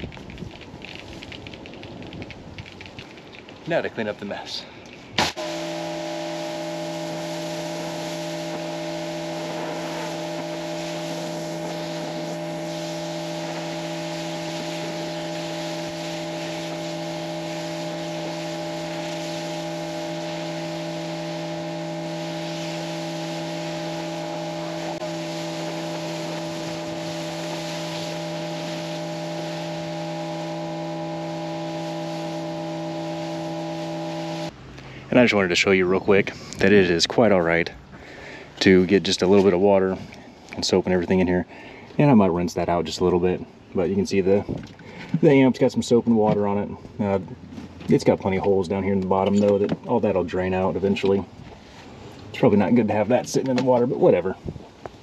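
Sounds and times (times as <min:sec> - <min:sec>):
pressure washer motor hum: 0:05.2 - 0:34.6
water jet spraying: 0:05.2 - 0:34.6.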